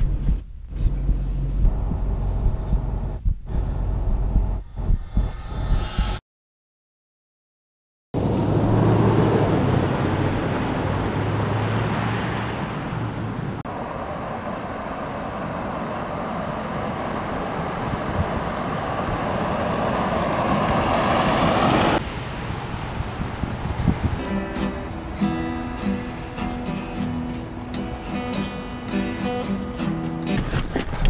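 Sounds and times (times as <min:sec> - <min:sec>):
truck engine hum: 0:00.0 - 0:06.2, 0:08.2 - 0:24.2
tyre noise: 0:29.9 - 0:31.0.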